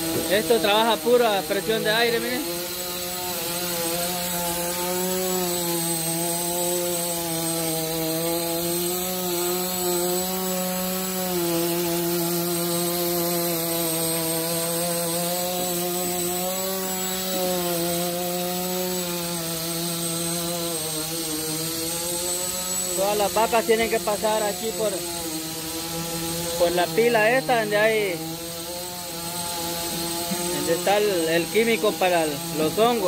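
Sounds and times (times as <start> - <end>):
pneumatic motor drone: 0.0 - 33.0.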